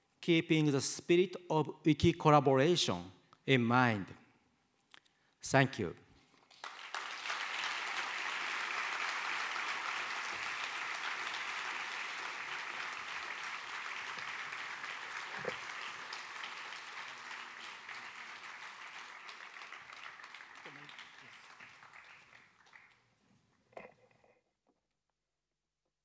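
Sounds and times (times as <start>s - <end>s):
large audience applauding: 6.5s - 23.2s.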